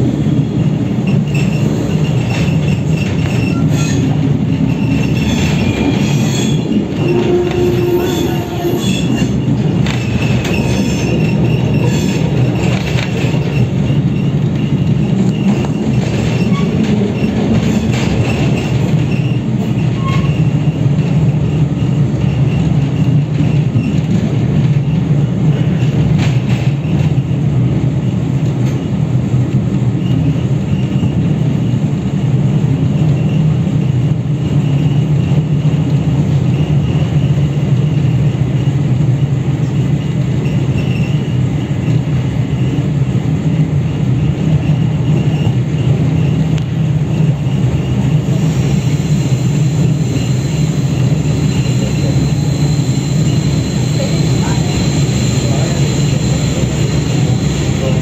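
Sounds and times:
train running on rails: 0.0 - 58.0
high-pitched whine: 47.4 - 58.0.

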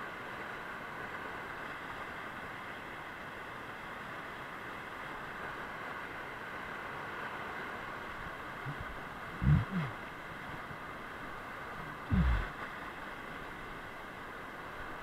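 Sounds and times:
river rapids roaring: 5.0 - 15.0
low thumps: 8.7 - 9.9, 12.1 - 12.5.

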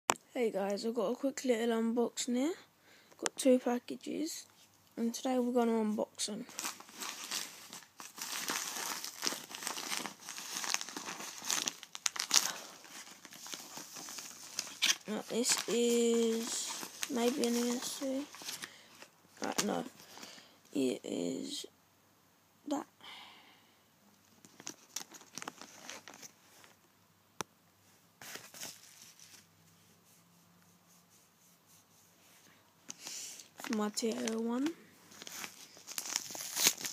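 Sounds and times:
envelopes crinkling and rustling: 6.4 - 20.5, 24.2 - 26.8, 28.2 - 29.5, 32.9 - 36.9.

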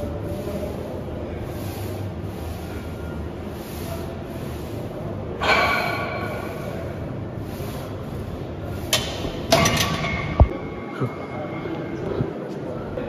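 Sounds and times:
metal gym equipment clanking: 8.9 - 10.5.

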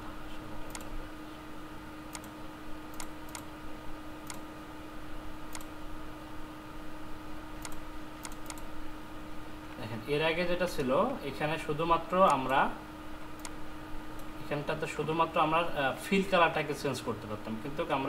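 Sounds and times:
steady low hum: 0.0 - 18.0
mouse and keyboard clicks: 7.6 - 8.6.

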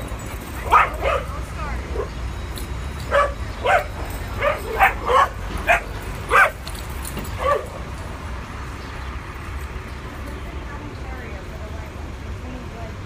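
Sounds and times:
dog barking: 0.6 - 2.1, 3.1 - 6.6, 7.4 - 7.7.

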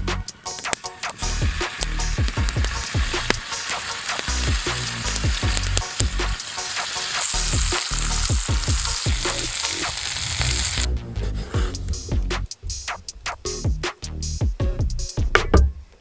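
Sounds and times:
background music with deep bass: 0.0 - 15.8
steaks sizzling in a skillet: 0.4 - 10.9.

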